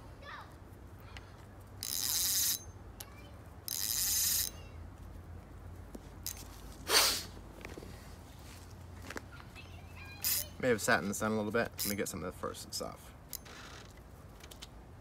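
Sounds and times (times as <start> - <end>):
fishing reel drag buzzing: 1.8 - 2.6, 3.7 - 4.5, 10.2 - 10.4.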